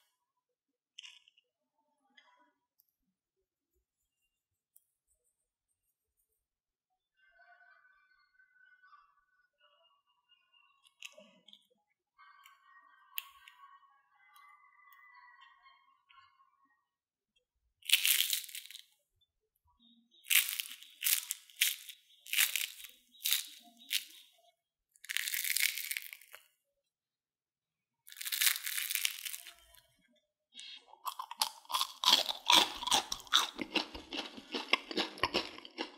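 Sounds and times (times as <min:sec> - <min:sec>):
crispy snacks crunching: 0:01.0 - 0:01.4, 0:17.8 - 0:18.9, 0:20.2 - 0:24.4, 0:25.0 - 0:26.5, 0:28.1 - 0:29.8, 0:30.8 - 0:35.9.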